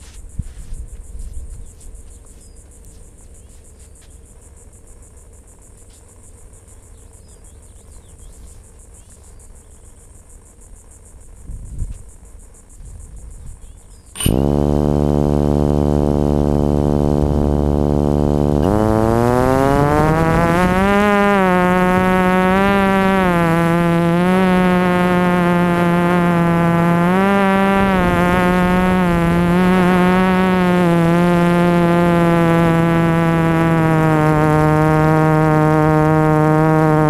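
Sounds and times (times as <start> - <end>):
propeller motor running: 1.6 - 37.0
wind rumble on microphone: 11.4 - 14.4, 18.6 - 37.0.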